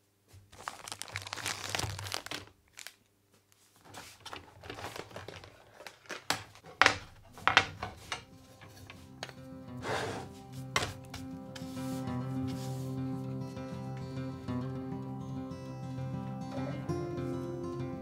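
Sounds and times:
wood pieces rustling and scraping: 3.9 - 9.4
wooden blocks knocking: 6.6 - 8.2.

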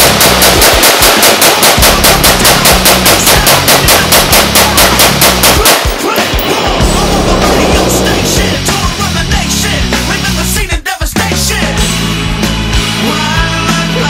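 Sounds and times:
rifle firing rapid shots: 0.0 - 8.2.

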